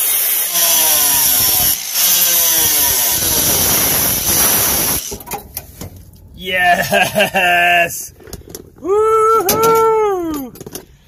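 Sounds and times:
angle grinder cutting sheet metal: 0:00.0 - 0:05.4.

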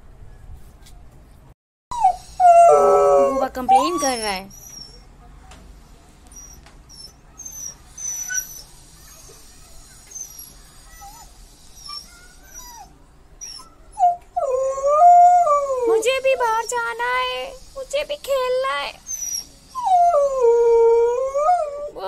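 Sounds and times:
dog whining: 0:01.9 - 0:05.1, 0:06.3 - 0:09.4, 0:10.0 - 0:16.8, 0:19.0 - 0:22.0.

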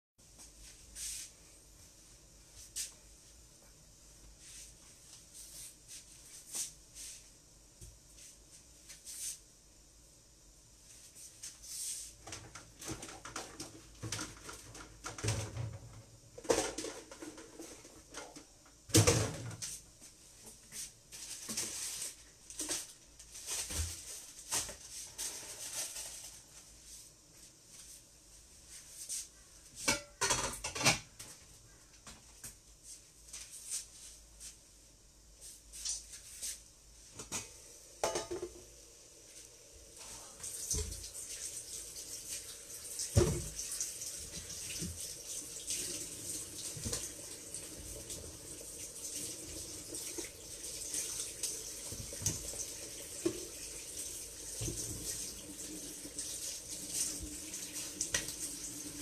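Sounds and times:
kitchenware clinking and knocking: 0:29.8 - 0:31.2, 0:37.2 - 0:38.7.

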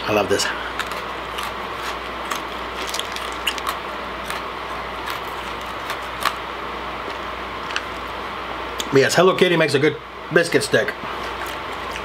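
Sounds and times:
room noise hiss: 0:00.0 - 0:12.0
chewing crunchy biscuit: 0:00.5 - 0:08.2, 0:11.1 - 0:12.0.

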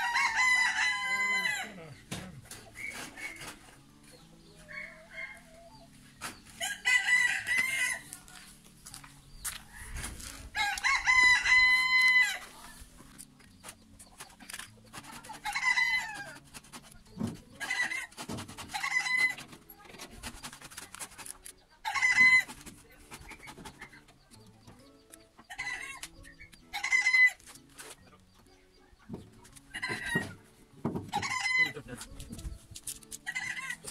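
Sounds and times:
rooster crowing: 0:00.0 - 0:01.6
chicken calls: 0:25.1 - 0:30.5, 0:31.1 - 0:31.9, 0:33.2 - 0:33.9.

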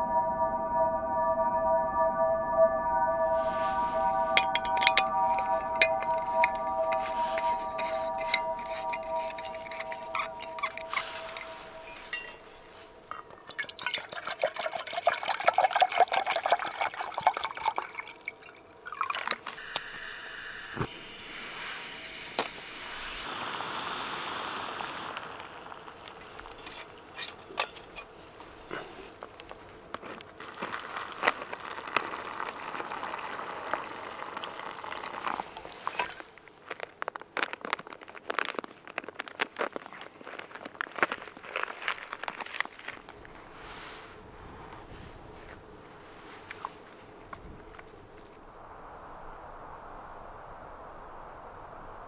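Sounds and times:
water pouring into pot: 0:13.2 - 0:19.5, 0:23.4 - 0:27.3, 0:30.8 - 0:35.6
water pouring into pouch: 0:13.4 - 0:19.6, 0:30.4 - 0:36.2
gas burner hissing: 0:19.6 - 0:26.9.

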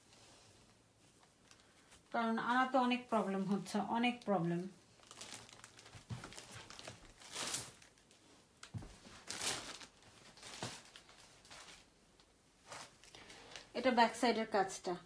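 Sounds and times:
fabric rustling: 0:00.0 - 0:13.7.

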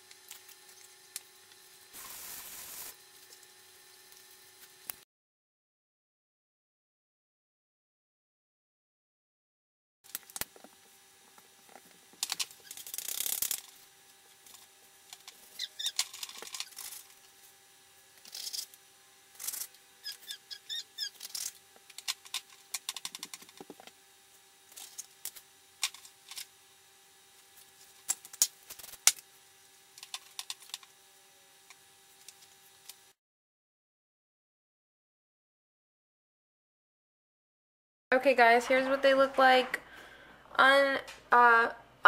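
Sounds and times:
faint steady hum: 0:38.1 - 0:42.0.

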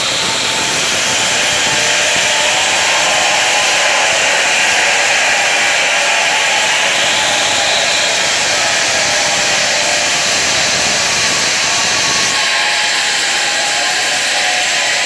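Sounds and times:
loud rushing noise: 0:00.0 - 0:15.0.

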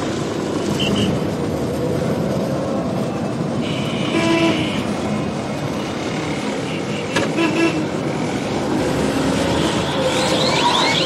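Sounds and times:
street traffic: 0:00.0 - 0:11.0
vehicle horn honking: 0:03.6 - 0:04.8, 0:06.7 - 0:07.8.

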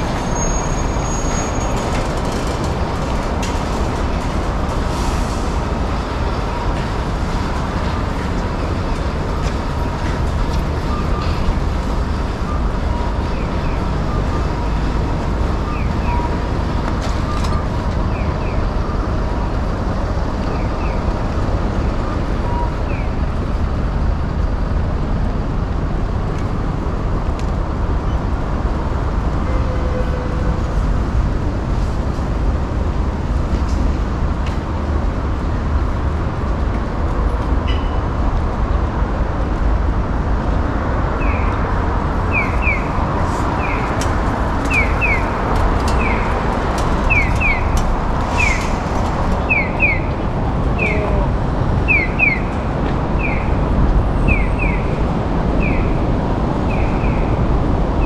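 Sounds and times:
rumble of passing vehicles: 0:00.0 - 0:58.0.

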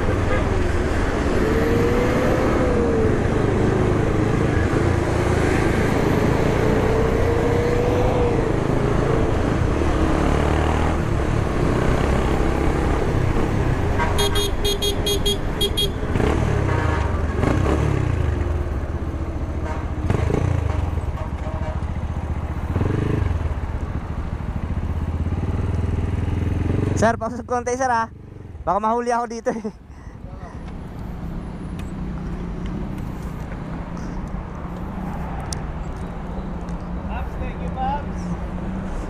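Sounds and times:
horn short beeps: 0:14.2 - 0:16.0.

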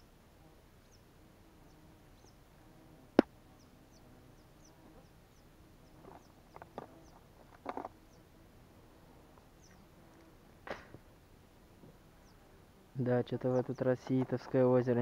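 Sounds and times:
bird chirping: 0:00.8 - 0:02.5, 0:03.5 - 0:07.3, 0:08.0 - 0:08.3, 0:09.4 - 0:10.0, 0:12.2 - 0:12.5, 0:13.1 - 0:15.0.

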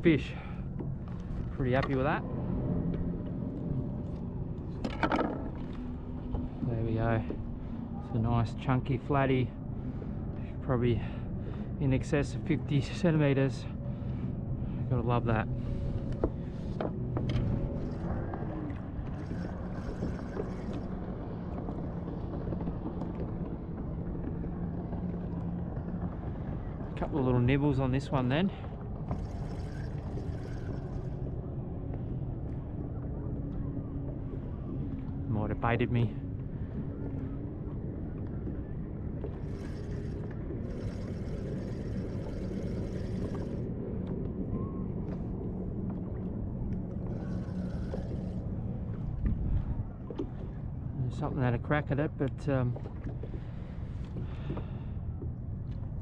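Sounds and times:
faint steady hum: 0:00.0 - 0:56.0
wind: 0:00.0 - 0:56.0
water noise: 0:13.7 - 0:35.6, 0:36.2 - 0:51.0.

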